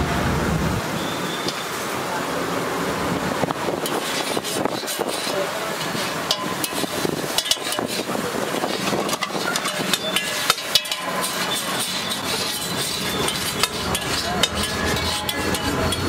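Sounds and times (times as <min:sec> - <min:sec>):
eggs sizzling: 0:03.8 - 0:16.0
metal spatula scraping a griddle: 0:03.8 - 0:16.0.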